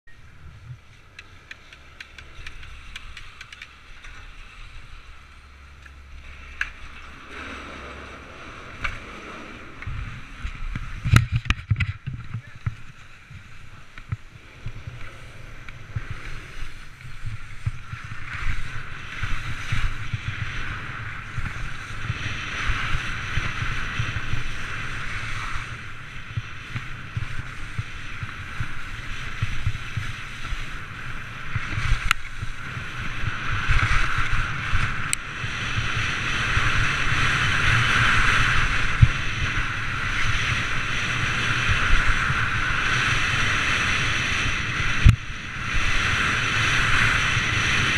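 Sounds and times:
wind rumbling on microphone: 0.0 - 47.9
skis scraping on snow: 0.3 - 47.9.

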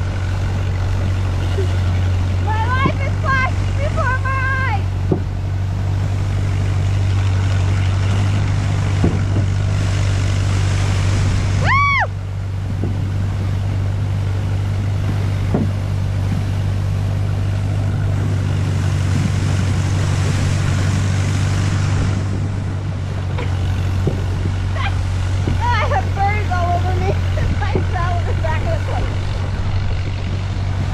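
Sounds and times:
hull sliding over snow: 0.0 - 30.9
tractor engine hum: 0.0 - 30.9.

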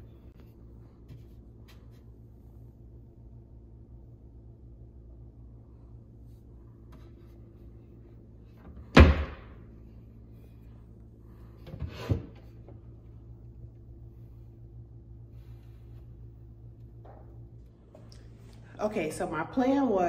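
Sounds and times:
faint low hum: 0.0 - 20.0
cabinet door shutting: 8.7 - 9.6
cabinet door knocks and rattles: 8.9 - 9.5.

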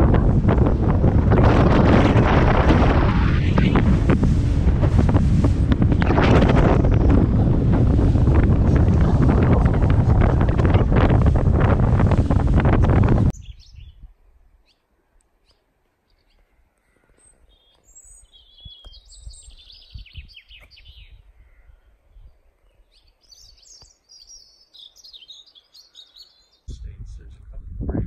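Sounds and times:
wind buffeting the microphone: 0.0 - 14.2, 18.3 - 22.5, 26.7 - 28.0
faint low wind rumble: 0.0 - 15.2, 26.7 - 28.0
small birds singing: 13.3 - 27.0.

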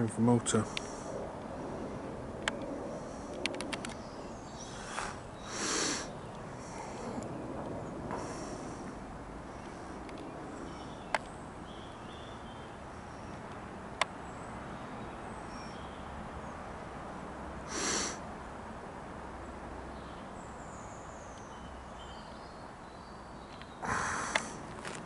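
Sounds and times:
distant jet airliner: 0.0 - 20.5, 23.6 - 25.0
sharp clicks: 24.3 - 25.0.

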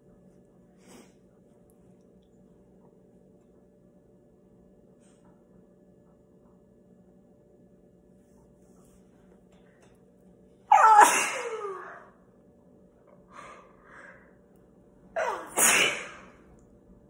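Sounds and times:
woman sneezing: 10.7 - 12.1, 15.2 - 16.4.

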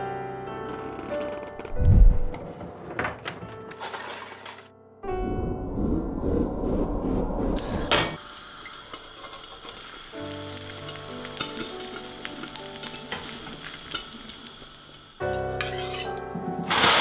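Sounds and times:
music: 0.0 - 6.6, 7.6 - 17.0
food sizzling and crackling: 8.2 - 17.0.

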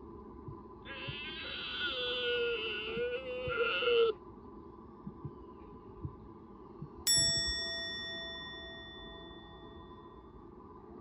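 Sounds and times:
bell-like chime ringing: 7.1 - 10.4.

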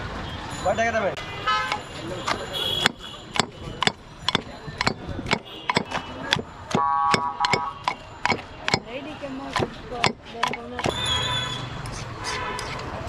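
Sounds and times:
knife chopping on a board: 2.3 - 8.9, 9.5 - 11.0.

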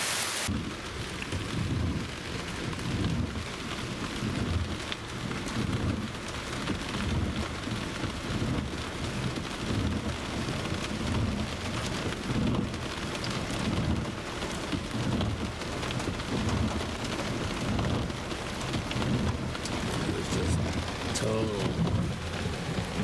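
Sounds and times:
heavy rain on a car roof: 0.0 - 23.0
low rumbling: 14.8 - 23.0.

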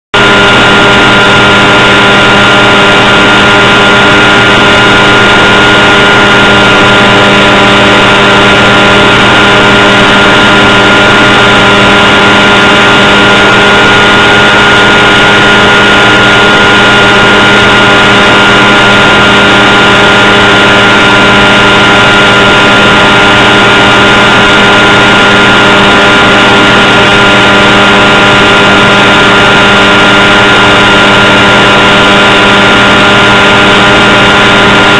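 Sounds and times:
model plane motor and propeller: 0.2 - 34.9.

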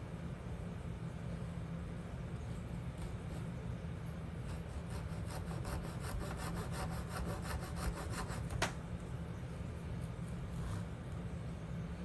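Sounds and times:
hacksaw cutting wood: 4.6 - 8.5.

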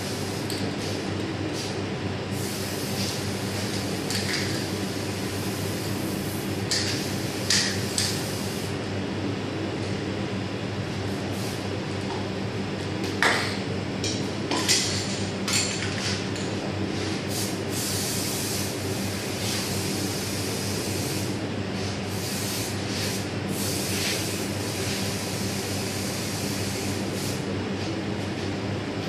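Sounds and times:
kitchen machinery humming: 0.0 - 17.7.

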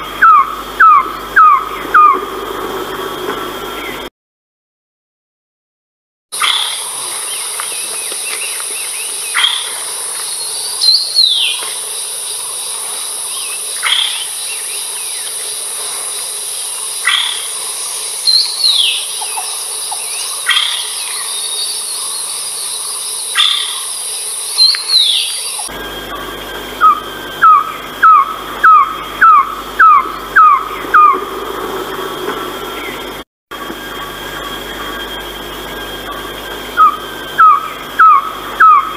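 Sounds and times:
bird whistled calls: 0.2 - 2.2, 6.4 - 11.7, 13.3 - 15.4, 18.2 - 31.3, 34.3 - 38.9
high insect hiss: 6.4 - 38.9.

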